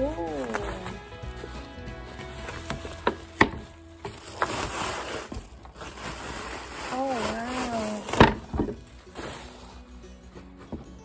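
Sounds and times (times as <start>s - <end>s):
person humming: 0.0s - 1.1s
bubble wrap crinkling: 0.0s - 11.0s.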